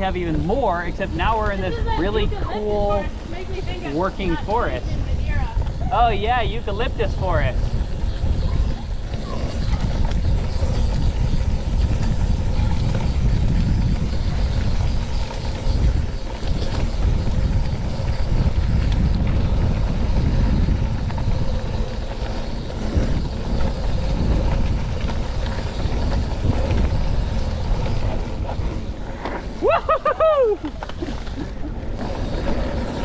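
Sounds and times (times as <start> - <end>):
tyres rumbling over dirt: 0.0 - 33.0
wind noise on microphone: 0.0 - 33.0.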